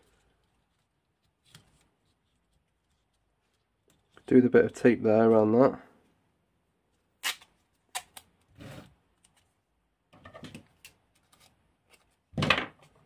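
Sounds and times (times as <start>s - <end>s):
electrical tape pulled and torn: 7.2s - 8.5s.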